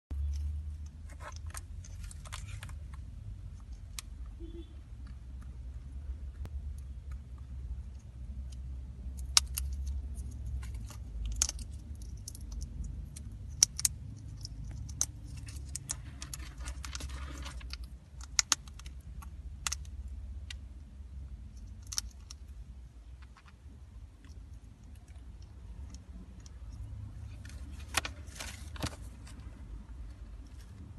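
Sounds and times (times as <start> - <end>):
paper rustling: 16.0 - 17.7, 27.5 - 29.4.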